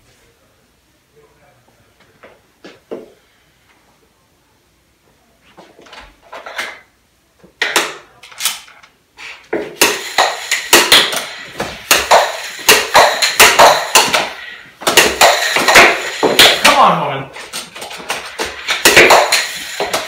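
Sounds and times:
air hockey puck and mallets clacking: 7.6s - 8.1s, 9.5s - 20.0s.

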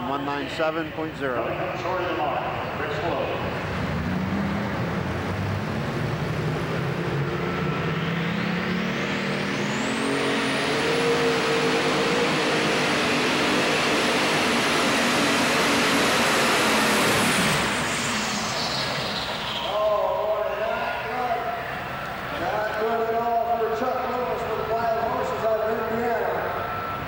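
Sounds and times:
tractor engine revving: 1.4s - 19.8s
turbocharger whistle: 6.9s - 22.5s, 26.2s - 27.0s.

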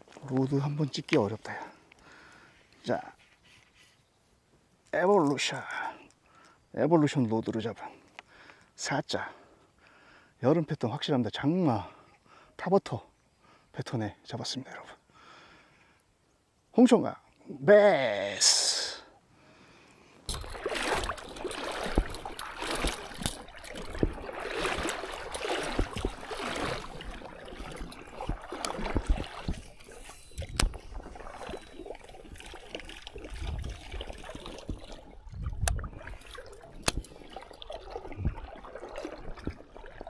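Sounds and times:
shallow water sloshing: 20.0s - 40.0s.

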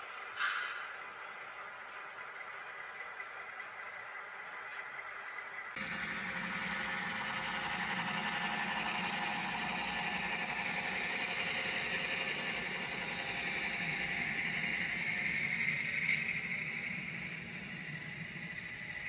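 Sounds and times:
wheels rolling on track: 0.0s - 19.0s
model train motor whirring: 5.6s - 19.0s.

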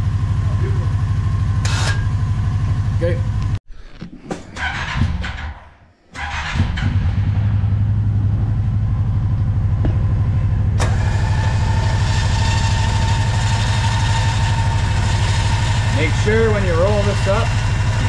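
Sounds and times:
engine idling: 0.0s - 3.6s, 6.2s - 18.0s
winch motor whining: 10.8s - 18.0s.

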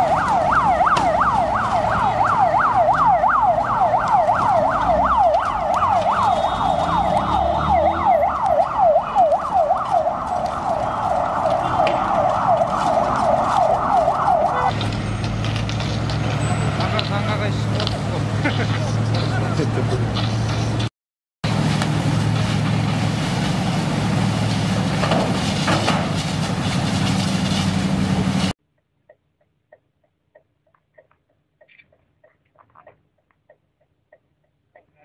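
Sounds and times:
siren yelping: 0.0s - 14.7s.

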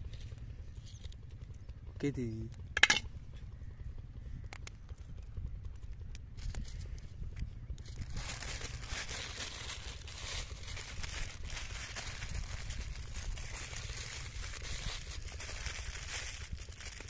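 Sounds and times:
low rumble: 0.0s - 17.0s
foil and paper crinkling: 7.8s - 17.0s.

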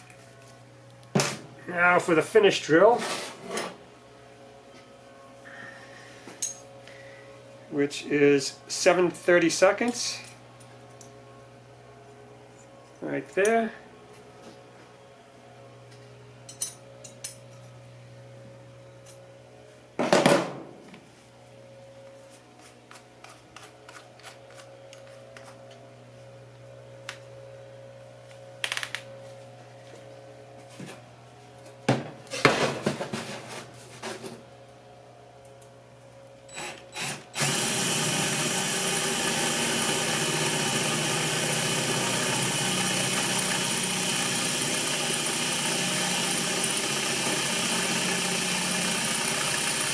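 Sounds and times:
electric drill drilling metal: 36.5s - 49.9s.

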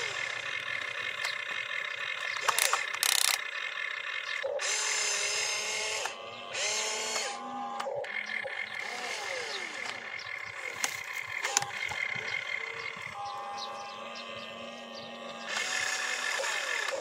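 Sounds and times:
toy electric motors whining: 0.0s - 17.0s.

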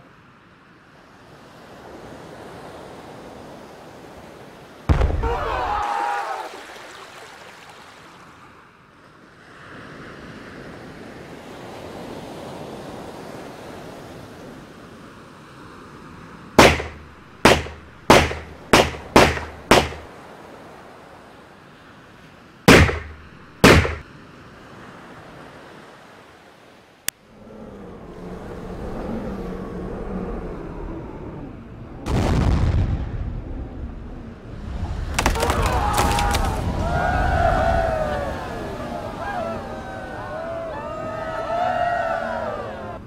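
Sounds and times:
sea waves: 0.0s - 33.0s, 33.9s - 43.0s
wind: 0.0s - 43.0s
gunshots: 16.6s - 20.1s, 22.7s - 24.0s.

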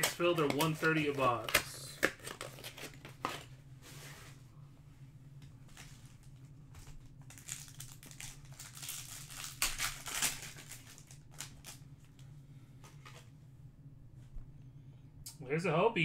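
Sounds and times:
wrapper crinkling and tearing: 0.0s - 3.5s, 5.7s - 11.8s
low steady hum: 0.0s - 16.0s.

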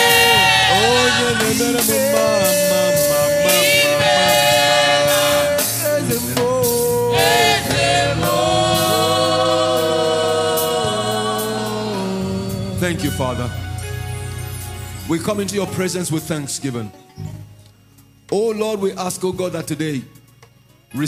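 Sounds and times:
person singing long sliding notes: 0.0s - 13.8s
drums steady beat: 0.0s - 16.5s
band playing: 0.0s - 20.0s.

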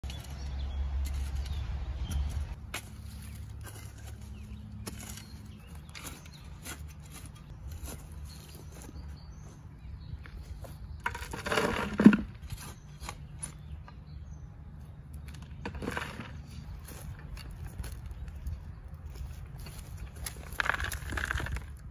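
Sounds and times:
metal shovel scraping ash: 0.0s - 8.0s.

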